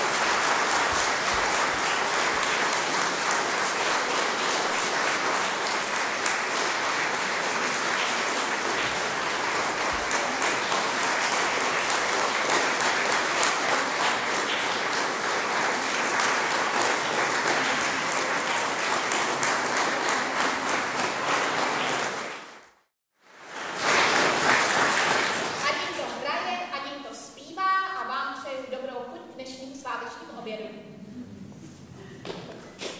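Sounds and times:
audience applauding: 0:00.0 - 0:22.8, 0:23.4 - 0:26.3.

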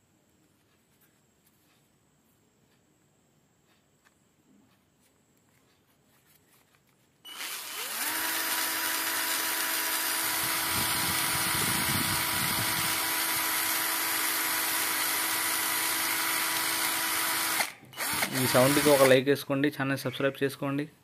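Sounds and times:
cordless screwdriver motor whine: 0:07.3 - 0:19.2.

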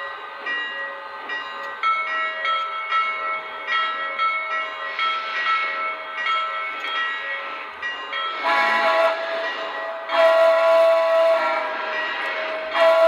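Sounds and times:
steam whistle toots: 0:08.4 - 0:13.0.

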